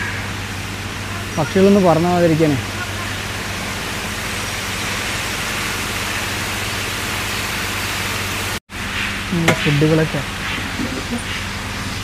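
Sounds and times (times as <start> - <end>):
waterfall splashing down rocks: 0.6 - 8.6.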